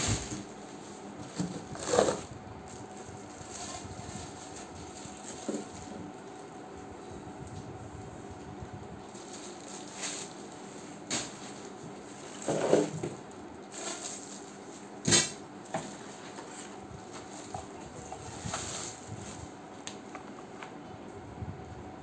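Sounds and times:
plastic packaging crinkling: 0.0 - 6.6, 9.0 - 15.0.

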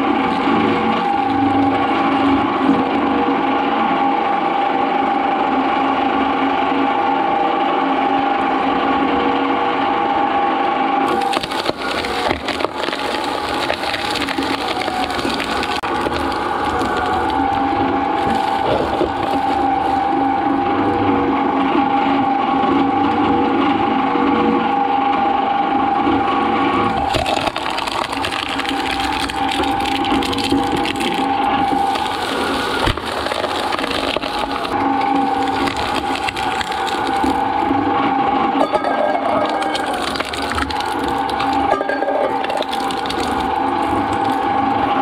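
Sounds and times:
coconut shell cracking and crunching: 0.0 - 2.3, 11.1 - 20.6, 26.9 - 37.8, 39.4 - 41.7, 42.3 - 45.0
shredder machine whine: 0.0 - 45.0.

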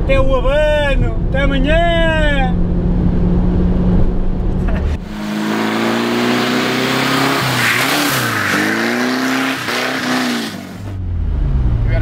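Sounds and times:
car engine revving: 2.2 - 12.0
tyre squeal: 7.1 - 10.9.

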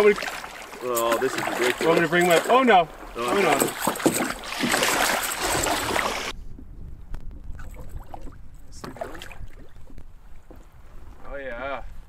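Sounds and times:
water splashing against canoe: 0.0 - 6.3, 7.5 - 10.8
wind on microphone: 2.9 - 12.0.

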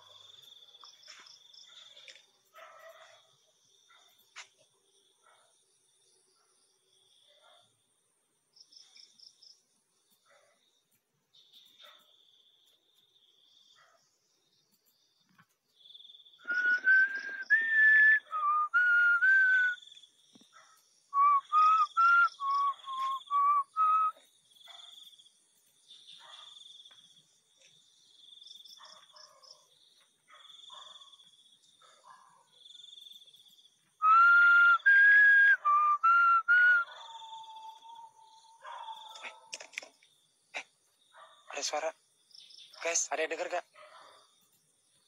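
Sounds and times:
insect chirping: 0.0 - 45.0
person whistling: 16.4 - 19.8, 21.2 - 24.2, 34.0 - 36.8.

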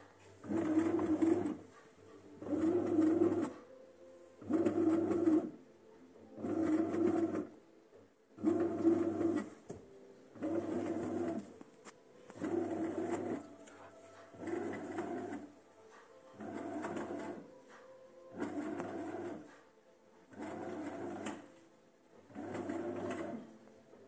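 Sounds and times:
bread machine kneading motor: 0.0 - 3.7, 4.4 - 5.6, 6.4 - 7.6, 8.3 - 9.7, 10.3 - 11.6, 12.3 - 15.5, 16.4 - 19.6, 20.3 - 24.0.

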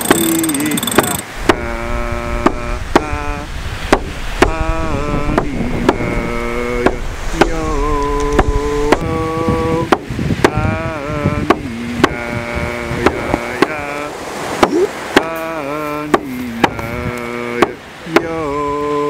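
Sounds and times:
drum beats: 0.0 - 1.7, 3.9 - 4.6
person chanting: 0.0 - 3.6, 4.4 - 19.0.

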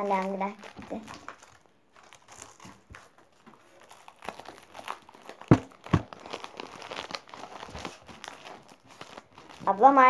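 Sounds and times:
plastic wrapping crinkling and tearing: 0.0 - 10.0
sharp knocks: 5.5 - 6.1.

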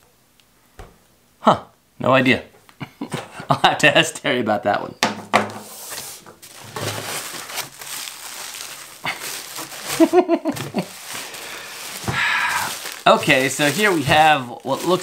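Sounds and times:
plastic wrapping crinkling: 5.9 - 15.0.

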